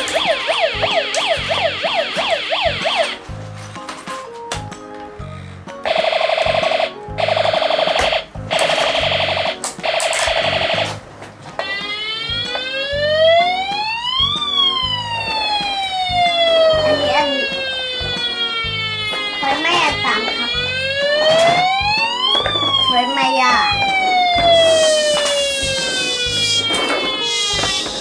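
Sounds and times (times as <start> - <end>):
siren wail rising and falling: 0.0 - 3.2, 11.6 - 28.0
toy siren warbling: 0.0 - 3.2, 5.9 - 11.0, 11.6 - 28.0.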